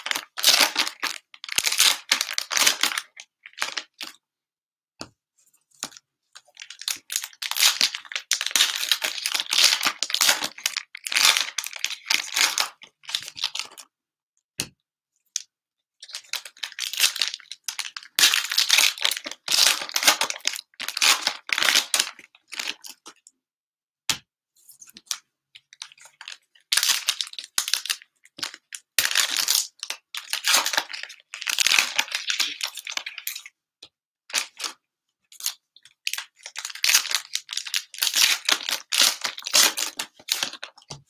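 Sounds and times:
plastic wrappers crinkling and tearing: 6.6s - 13.8s, 16.1s - 22.9s, 26.0s - 33.5s, 35.4s - 40.9s.

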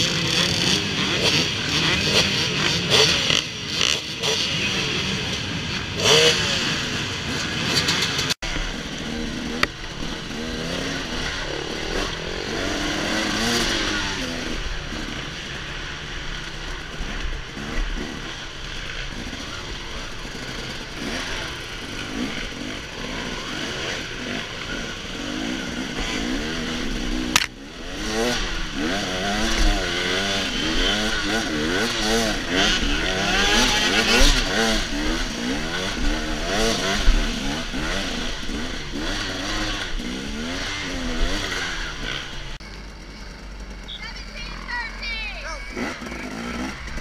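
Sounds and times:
dirt bike engines revving: 0.0s - 47.0s
sharp click: 27.4s - 27.6s.

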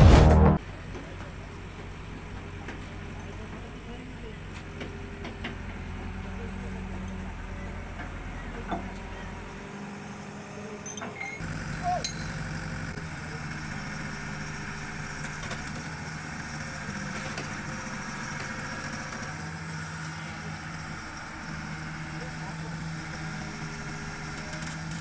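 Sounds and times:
excavator diesel engine running: 0.0s - 25.0s.

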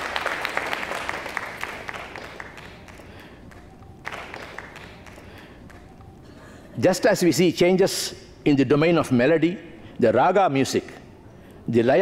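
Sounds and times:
audience applause: 0.0s - 5.2s.

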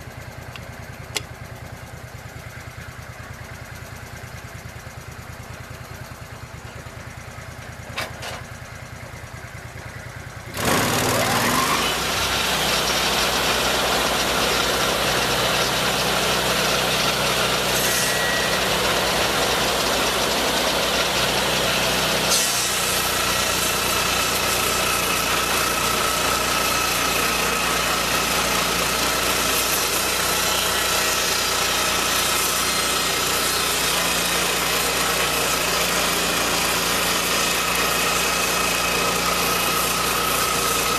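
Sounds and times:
sawmill engine running: 0.0s - 40.9s
circular saw blade cutting log: 0.4s - 1.4s, 10.5s - 40.9s.

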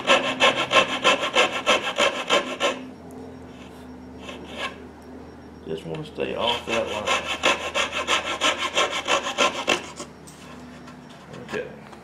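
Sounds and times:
coping saw cutting wood: 0.0s - 2.8s, 6.4s - 10.1s.

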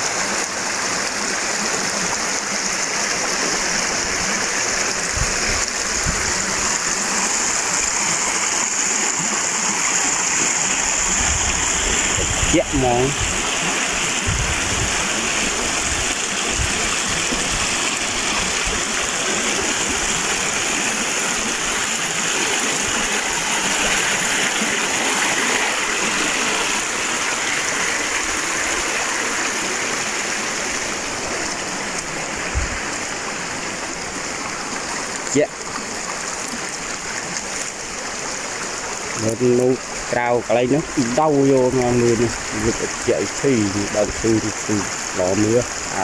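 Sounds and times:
water rushing over rocks: 0.0s - 46.0s.

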